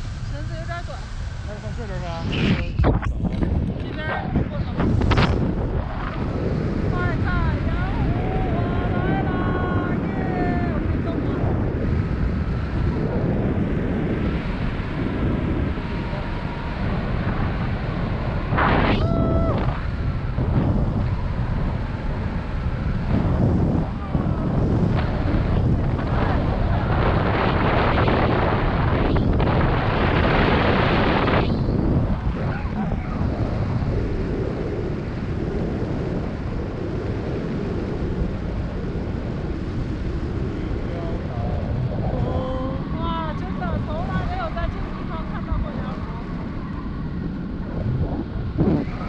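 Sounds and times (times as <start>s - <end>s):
wind buffeting microphone: 0.0s - 49.0s.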